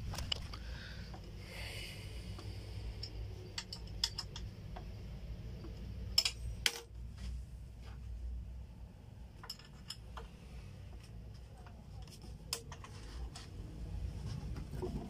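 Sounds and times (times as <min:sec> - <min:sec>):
plastic parts clicking and knocking: 0:03.0 - 0:05.0.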